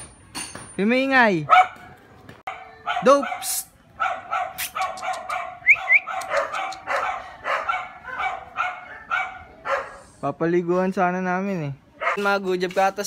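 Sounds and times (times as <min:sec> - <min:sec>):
dogs barking: 0:01.4 - 0:10.1, 0:12.0 - 0:12.3
dog yipping: 0:01.5 - 0:01.9, 0:02.5 - 0:10.0, 0:12.0 - 0:12.2.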